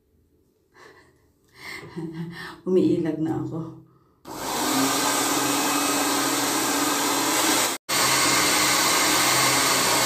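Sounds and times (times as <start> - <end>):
hair dryer running: 4.3 - 10.0.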